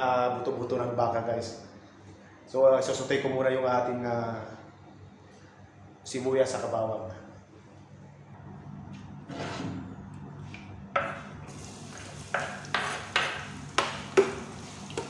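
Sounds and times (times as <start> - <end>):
garlic sizzling in hot oil: 11.5 - 15.0.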